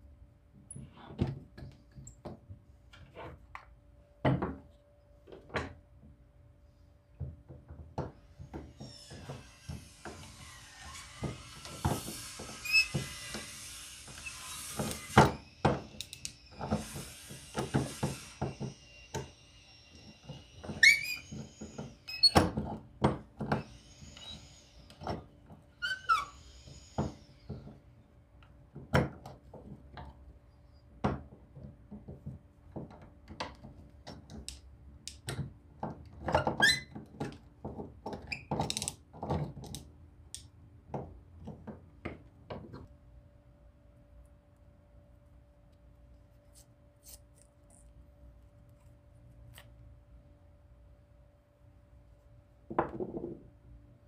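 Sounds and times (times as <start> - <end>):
short squeaks: 20.2 - 22.4, 25.8 - 27.0.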